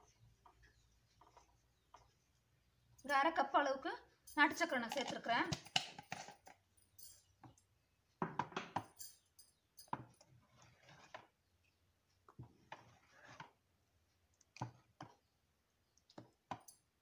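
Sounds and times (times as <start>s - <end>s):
ladle scraping clay pot: 9.9s - 13.7s.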